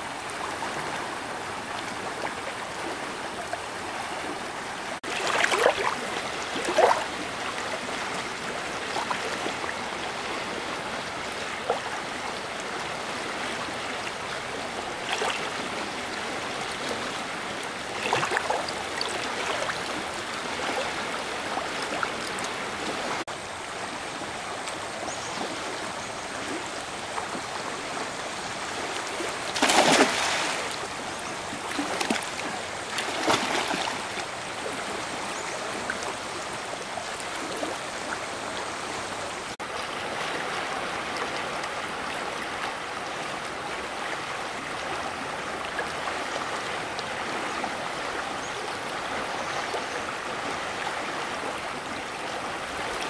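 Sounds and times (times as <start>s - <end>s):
stream water running: 0.0s - 53.0s
splashes in water: 5.0s - 7.2s, 18.0s - 21.0s, 29.1s - 31.0s, 31.6s - 34.3s.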